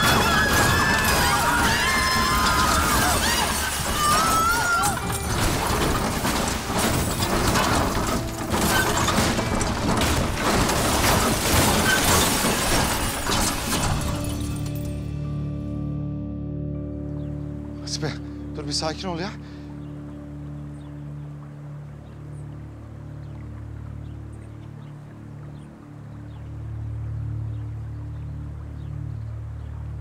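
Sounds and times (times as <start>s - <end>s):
high cries: 0.0s - 5.8s
car crashing and tumbling: 0.0s - 15.0s
glass breaking: 0.0s - 15.1s.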